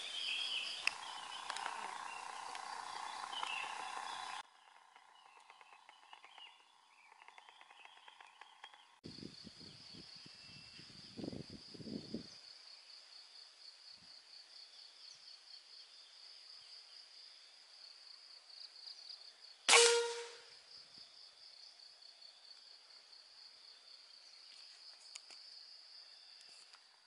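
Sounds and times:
insects chirring: 0:00.0 - 0:27.0
air rifle shot: 0:19.7 - 0:20.4.

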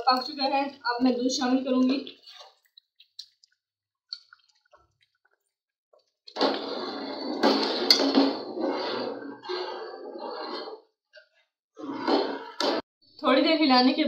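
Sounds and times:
ladle stirring in pot: 0:02.1 - 0:05.6, 0:06.3 - 0:12.8.

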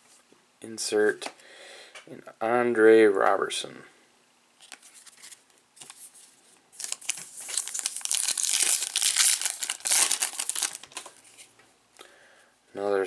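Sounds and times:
foil wrapper crinkling and tearing: 0:06.8 - 0:11.2.

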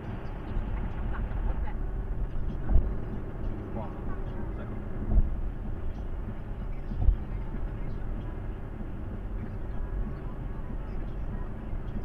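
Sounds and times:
road and tyre noise: 0:00.0 - 0:12.0
low thumps: 0:04.7 - 0:10.2.

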